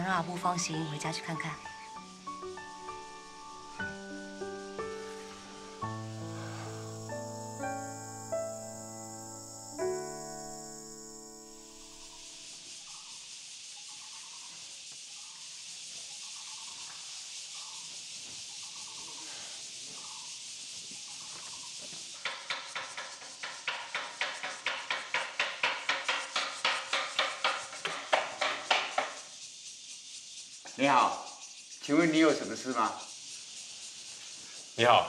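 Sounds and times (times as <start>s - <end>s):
faint chirps: 0.0s - 24.7s, 28.8s - 35.0s
high insect drone: 0.0s - 35.0s
broom sweeping floor: 4.0s - 7.7s.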